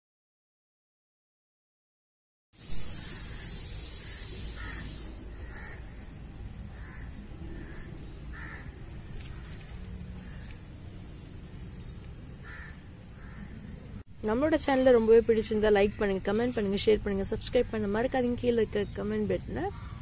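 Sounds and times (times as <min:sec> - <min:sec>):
hiss: 0:02.6 - 0:05.7
crows cawing: 0:04.1 - 0:06.0, 0:06.7 - 0:10.6, 0:12.4 - 0:13.8.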